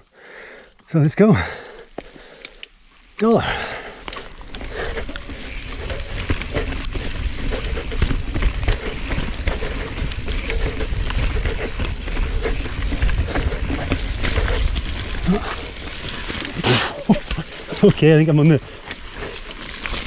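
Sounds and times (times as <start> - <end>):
bike rattling over rocks: 1.4 - 20.0
tyres rolling over dirt: 3.0 - 20.0
wind rumble on microphone: 4.7 - 16.4.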